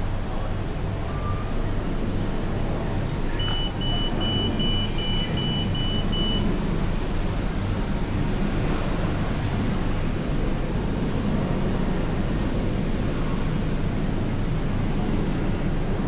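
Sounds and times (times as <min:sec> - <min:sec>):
steady low hum: 0:00.0 - 0:16.0
street noise: 0:00.0 - 0:16.0
vending machine beeping: 0:03.3 - 0:06.6.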